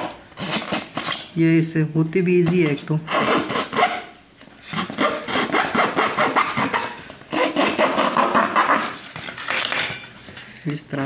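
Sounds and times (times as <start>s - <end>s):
blade cutting cardboard: 0.0s - 1.3s, 2.5s - 9.2s.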